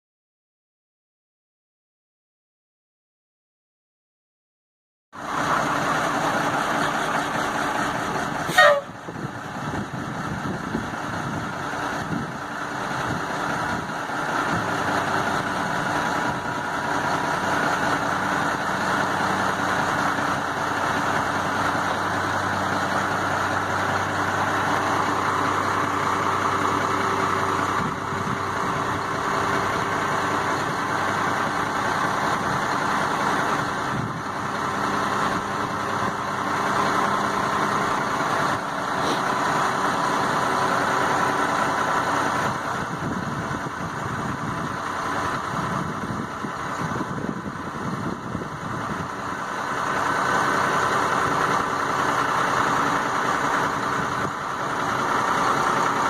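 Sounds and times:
diesel truck engine idling: 0:05.2 - 0:56.0.

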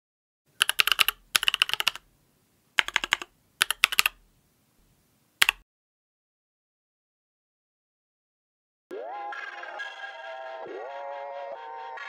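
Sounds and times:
mechanical keyboard typing: 0:00.6 - 0:02.1, 0:02.8 - 0:04.2, 0:05.4 - 0:05.6.

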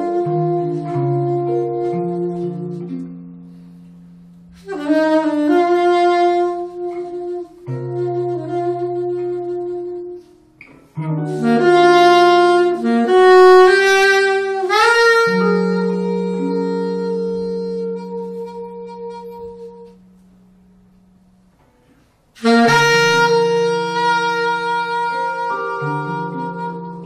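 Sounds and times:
soprano saxophone playing: 0:00.0 - 0:20.3, 0:21.8 - 0:27.0
guitar chord: 0:00.0 - 0:27.0.

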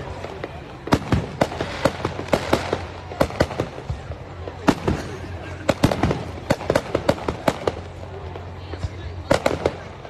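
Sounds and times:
fireworks bangs and pops: 0:00.0 - 0:10.0.

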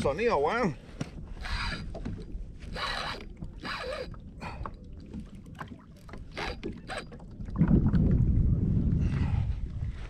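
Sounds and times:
wind rumble on microphone: 0:00.0 - 0:10.0
fishing reel drag paying out line: 0:01.4 - 0:01.9, 0:02.6 - 0:04.2, 0:06.3 - 0:07.2.

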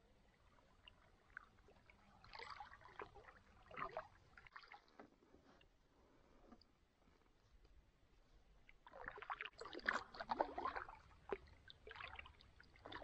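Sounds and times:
canoe paddle splashing water: 0:00.6 - 0:05.1, 0:08.7 - 0:13.0.

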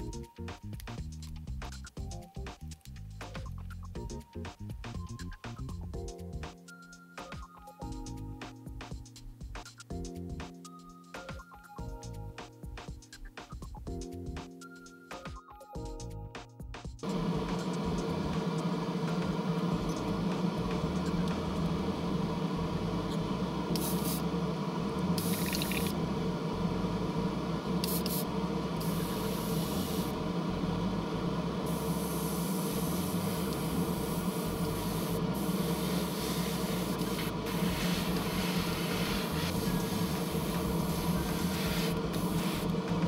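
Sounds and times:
airbrush spraying hiss: 0:17.0 - 0:24.4, 0:25.2 - 0:26.0, 0:27.7 - 0:30.2, 0:31.6 - 0:43.0
machine hum: 0:17.0 - 0:43.0.

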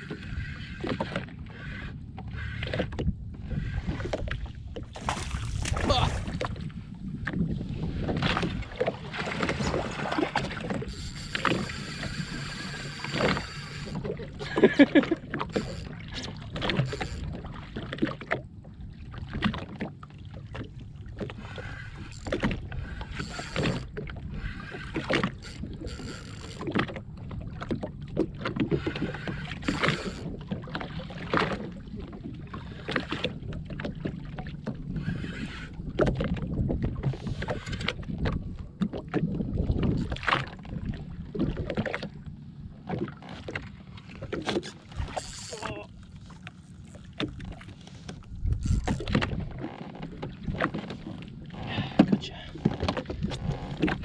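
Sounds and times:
water slapping against hull: 0:00.0 - 0:54.0
wind on microphone: 0:02.4 - 0:14.8, 0:34.6 - 0:41.8, 0:47.4 - 0:54.0
fishing reel knocks and clicks: 0:10.8 - 0:14.0, 0:15.5 - 0:16.0, 0:16.7 - 0:17.3, 0:23.0 - 0:26.7, 0:28.9 - 0:30.3, 0:44.6 - 0:45.6, 0:48.5 - 0:49.2.

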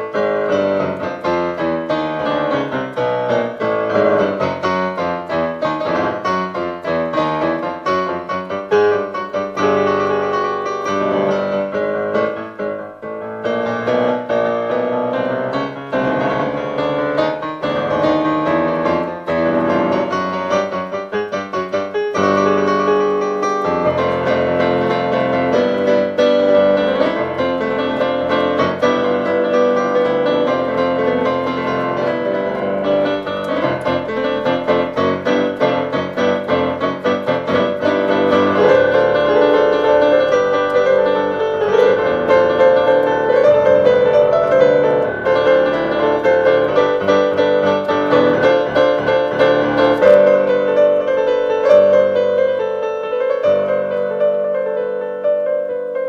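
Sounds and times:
piano playing quick notes: 0:00.0 - 0:56.0.

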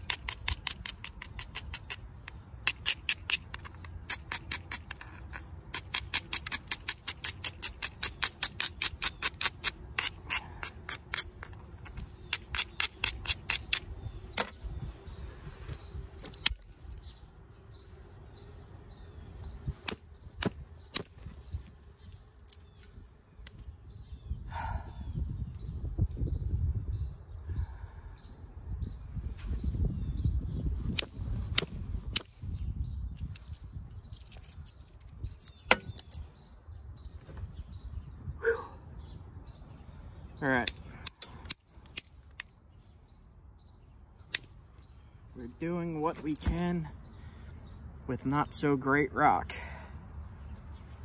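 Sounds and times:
clicks of stone on stone: 0:00.0 - 0:14.6, 0:16.2 - 0:17.1, 0:19.7 - 0:23.8, 0:30.9 - 0:32.6, 0:33.2 - 0:36.3, 0:40.6 - 0:42.6.

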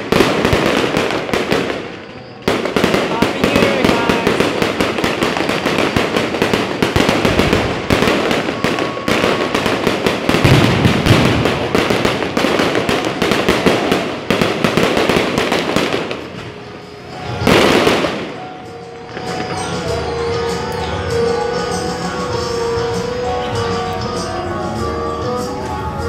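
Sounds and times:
loud firework burst: 0:00.0 - 0:19.6
fireworks crackling and bangs: 0:00.0 - 0:26.0.

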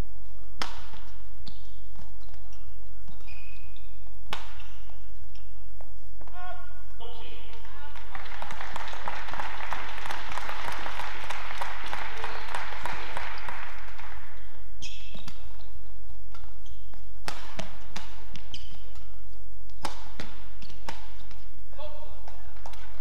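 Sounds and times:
racket hitting shuttlecock: 0:00.6 - 0:05.5, 0:11.0 - 0:21.6
shoes squeaking on court: 0:00.6 - 0:06.3, 0:11.7 - 0:21.6
crowd noise in a hall: 0:06.8 - 0:16.2.

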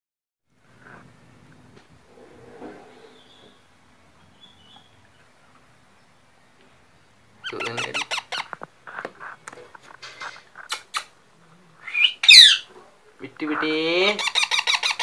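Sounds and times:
parrot chicks squeaky calls: 0:07.4 - 0:09.0, 0:11.9 - 0:12.7, 0:13.5 - 0:15.0.

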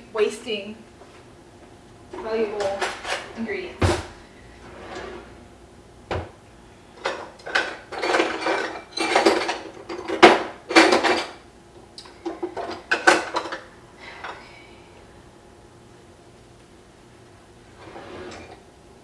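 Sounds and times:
metal cookware clattering: 0:07.0 - 0:11.4.

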